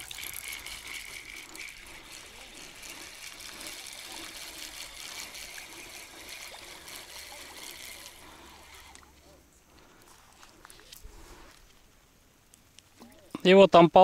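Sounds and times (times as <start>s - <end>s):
water trickling: 0.0s - 10.3s.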